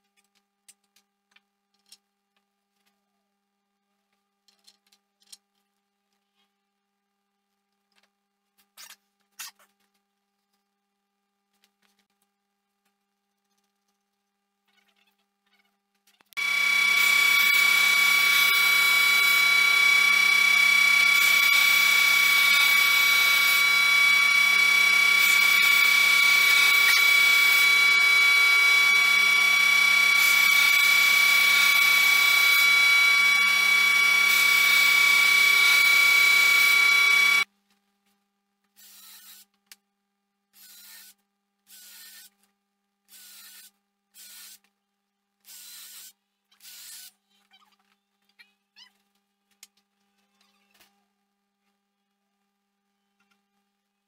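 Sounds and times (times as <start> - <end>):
cordless drill driving screws: 16.4 - 37.5
planer running with high whine: 16.4 - 37.5.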